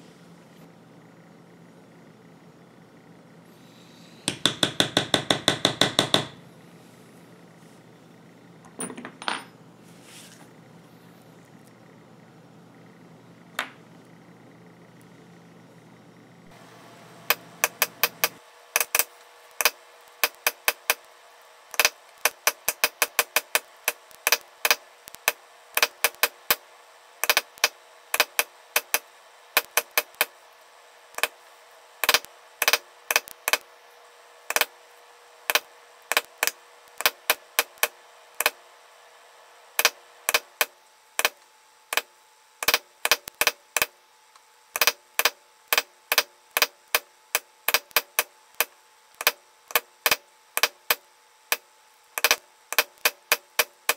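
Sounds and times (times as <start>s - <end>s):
mallet tapping metal stamping tool: 4.3s - 6.4s.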